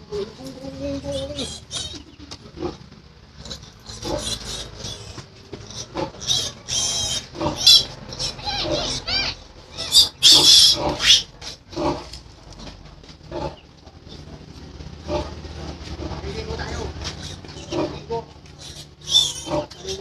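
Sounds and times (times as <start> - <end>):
piglets squealing: 1.0 - 2.8, 3.4 - 12.0, 16.5 - 20.0.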